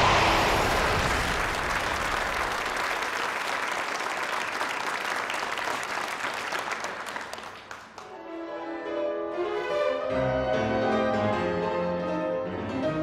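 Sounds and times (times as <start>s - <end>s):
audience applause: 0.0s - 8.1s
music: 8.0s - 13.0s.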